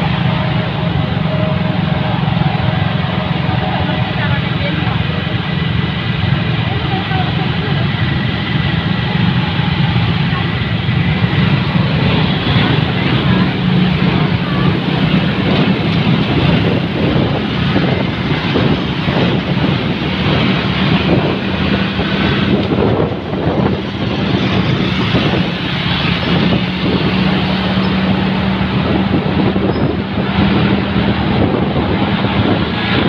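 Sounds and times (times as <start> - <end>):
road rumble: 0.0 - 33.0
vehicle engine running: 0.0 - 33.0
wind buffeting microphone: 0.0 - 33.0.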